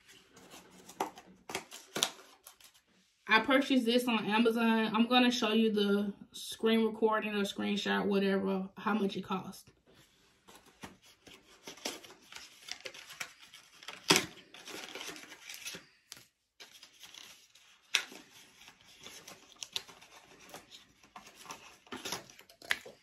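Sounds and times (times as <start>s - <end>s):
packaging crinkling and tearing: 0.2s - 2.8s, 10.6s - 23.0s.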